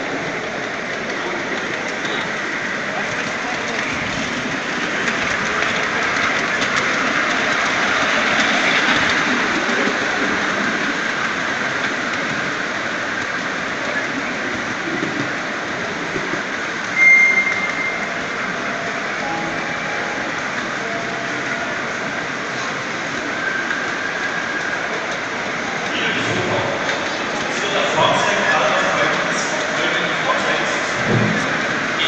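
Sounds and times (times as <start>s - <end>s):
train wheels clattering on track: 0.0s - 19.3s, 19.9s - 32.0s
short high tone: 17.0s - 18.1s, 19.2s - 21.6s.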